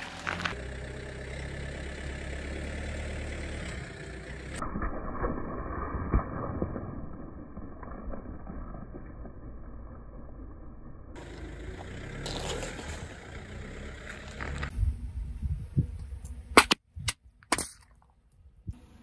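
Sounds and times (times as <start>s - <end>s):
tyre rolling rumble: 11.2s - 14.7s.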